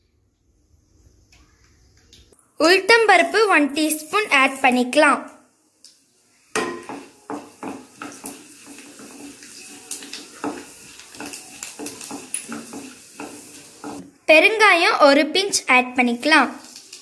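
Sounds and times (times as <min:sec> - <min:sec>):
seeds sizzling in hot oil: 0:06.0 - 0:14.0, 0:15.1 - 0:17.0.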